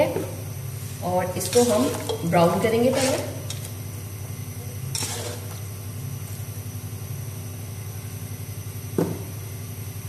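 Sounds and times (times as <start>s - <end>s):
pulsing mechanical hum: 0.0s - 10.0s
onions sizzling in oil: 4.8s - 5.8s.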